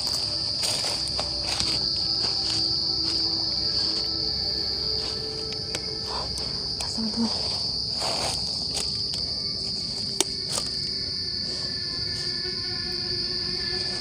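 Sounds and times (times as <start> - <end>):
night insects trilling: 0.0 - 14.0.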